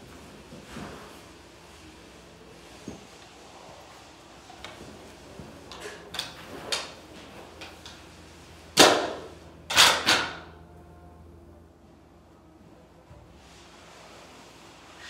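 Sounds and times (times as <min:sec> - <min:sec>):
pole scraping over floor: 0:00.0 - 0:08.7, 0:13.1 - 0:15.0.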